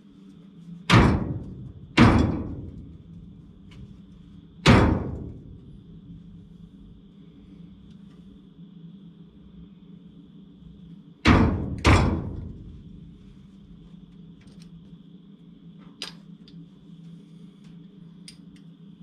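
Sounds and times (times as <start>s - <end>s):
low shop hum: 0.0s - 19.0s
loud bangs on sheet metal: 0.9s - 3.4s, 4.6s - 6.4s, 11.3s - 13.1s.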